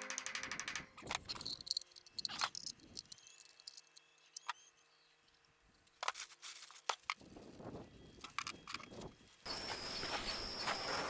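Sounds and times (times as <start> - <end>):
small steel parts clinking: 0.0 - 4.5.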